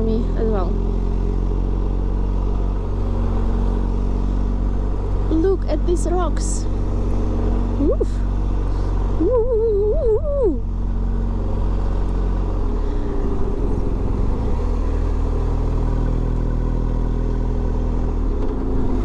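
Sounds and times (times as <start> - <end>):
motorcycle engine running: 0.0 - 18.3
wind and road noise: 0.0 - 19.0
wavering vocal sound: 9.1 - 10.7.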